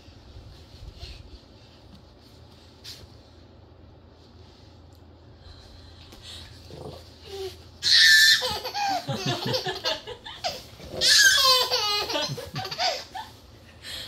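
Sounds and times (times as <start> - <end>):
toddler laughing: 7.8 - 13.4.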